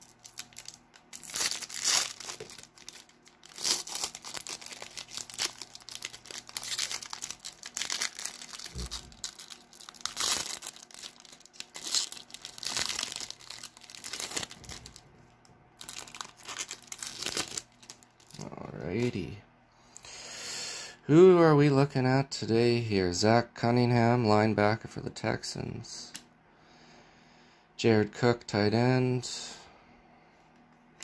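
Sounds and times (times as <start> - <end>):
foil wrapper crinkling and tearing: 0.0 - 15.1, 15.8 - 18.4.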